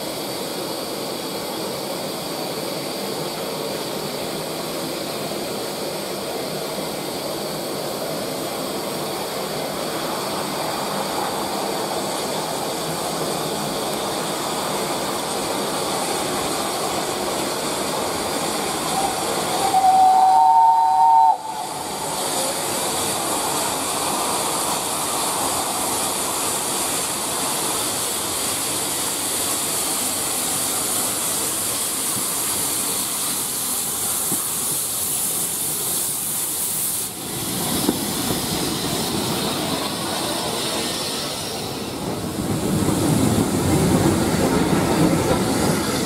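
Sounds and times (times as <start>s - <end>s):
steam locomotive hissing: 0.0s - 46.0s
two-note steam whistle: 18.9s - 22.0s.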